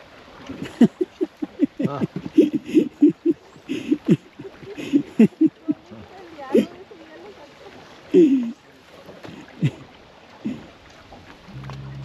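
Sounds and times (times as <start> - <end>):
person laughing loudly: 0.5 - 5.8, 8.2 - 8.6.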